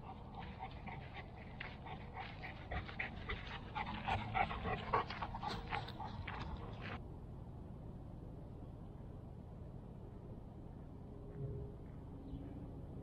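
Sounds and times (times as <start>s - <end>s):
large dog panting: 0.0s - 7.0s.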